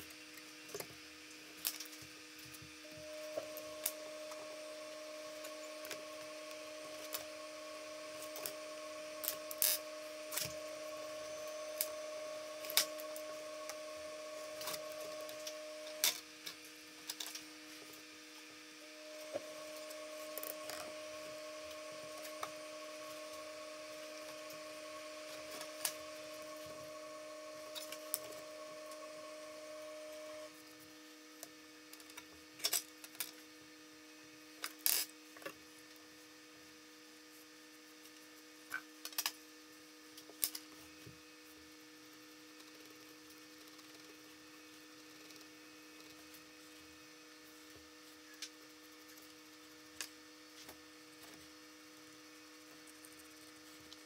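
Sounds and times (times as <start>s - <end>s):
steady electrical hum: 0.0s - 54.0s
background hiss: 2.8s - 16.2s, 18.8s - 30.5s.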